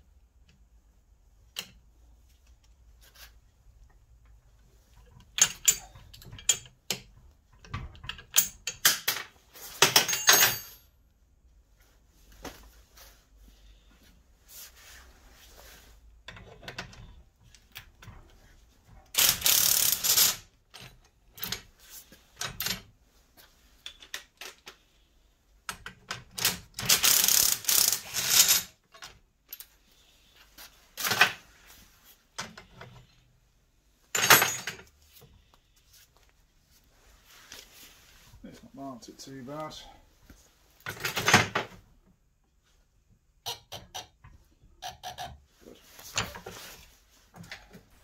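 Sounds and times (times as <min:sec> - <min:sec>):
tools rattling on metal: 0:09.8 - 0:10.9, 0:34.1 - 0:34.9.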